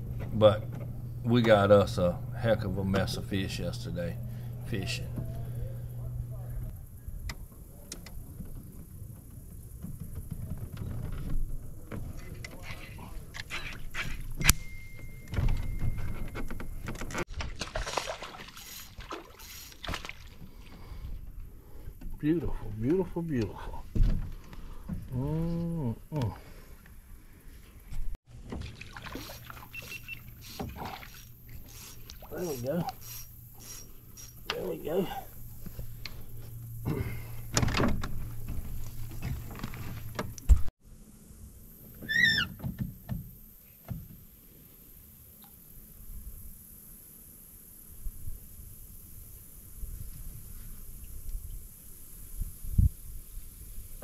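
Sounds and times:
steady low hum: 0.0 - 17.3, 18.0 - 42.0
knocks and clatter in a boat: 7.2 - 13.8, 15.2 - 17.7, 23.4 - 25.2, 35.6 - 40.7
water sloshing against boat hull: 15.3 - 21.4, 28.3 - 40.7.

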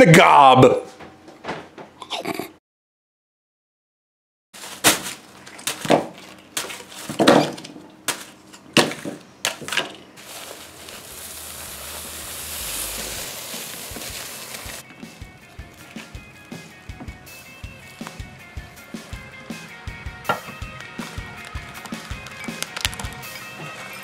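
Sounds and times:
grain poured into plastic bucket: 10.2 - 14.8
plastic bags crinkling: 10.2 - 14.8, 21.1 - 23.2.

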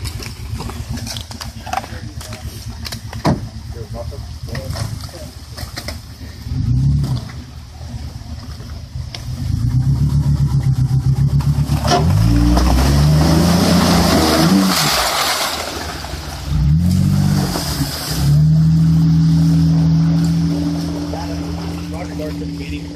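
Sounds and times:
engine revving hard: 9.4 - 15.2, 16.5 - 22.8.

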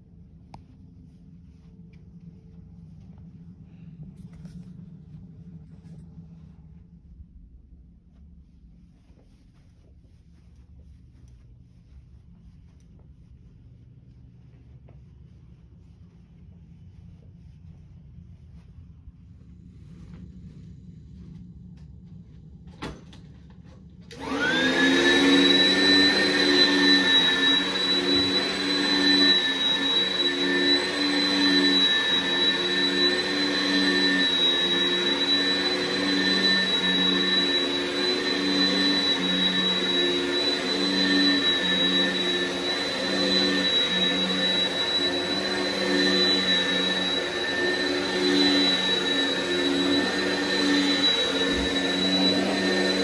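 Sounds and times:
vacuum cleaner motor whine: 21.2 - 53.0.

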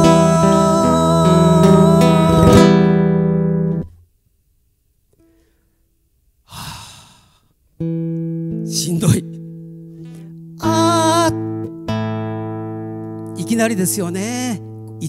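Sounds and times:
man singing with vibrato: 0.0 - 3.0, 10.6 - 11.7
strummed acoustic guitar chord: 0.0 - 3.8, 7.8 - 14.0
short breathy noise: 5.2 - 7.6.

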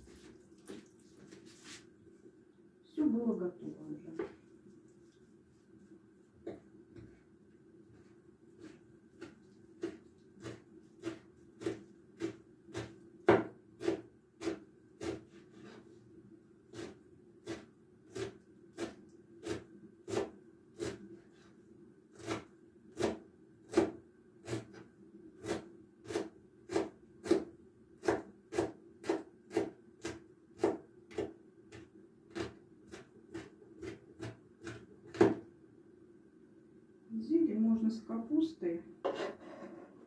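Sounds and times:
knife chopping on wooden board: 8.6 - 15.2, 22.2 - 24.8, 25.4 - 35.4.

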